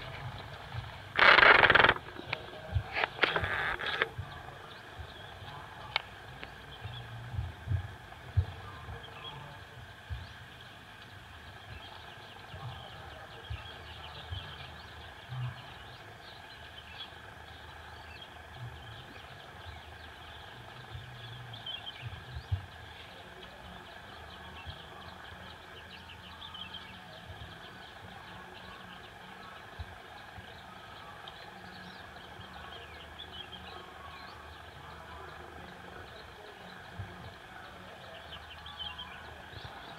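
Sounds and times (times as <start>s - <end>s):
low thumps and rumbles: 0.0s - 9.1s
high chirping chorus: 0.0s - 39.9s.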